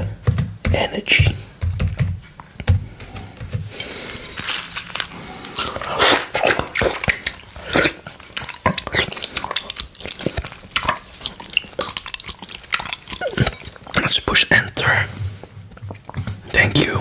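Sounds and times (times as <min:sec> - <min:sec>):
licking and slurping: 0:02.5 - 0:17.0.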